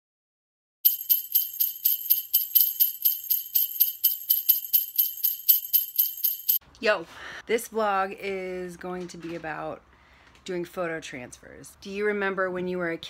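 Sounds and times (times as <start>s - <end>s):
jingle bells shaken: 0.8s - 6.6s.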